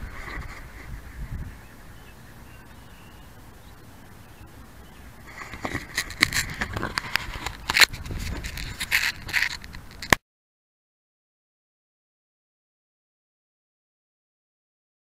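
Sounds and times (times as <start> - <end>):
low steady background: 0.0 - 10.1
handling clicks and rustles: 5.3 - 10.2.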